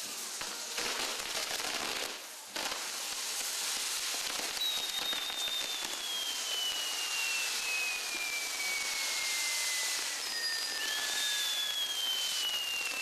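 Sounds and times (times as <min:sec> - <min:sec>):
fireworks crackling: 0:00.0 - 0:13.0
high falling whistle: 0:04.5 - 0:13.0.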